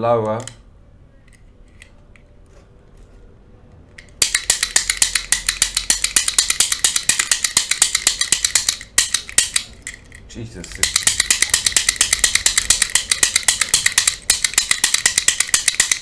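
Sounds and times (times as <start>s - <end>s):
pick gun metallic snaps: 4.0s - 16.0s.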